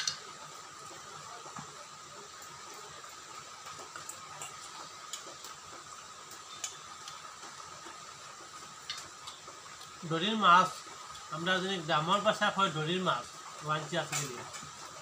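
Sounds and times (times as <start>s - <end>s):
background hiss: 0.0s - 15.0s
soft eating clicks: 3.6s - 10.0s.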